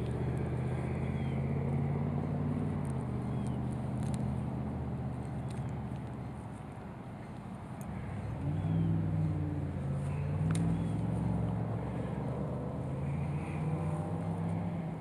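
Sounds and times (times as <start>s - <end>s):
engine low drone: 0.0s - 15.0s.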